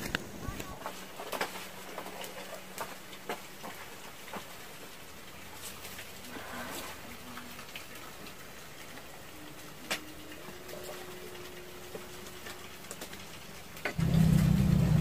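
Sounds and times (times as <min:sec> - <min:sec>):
firewood clicking and snapping: 0:11.4 - 0:14.0
loud low steady hum: 0:14.0 - 0:15.0.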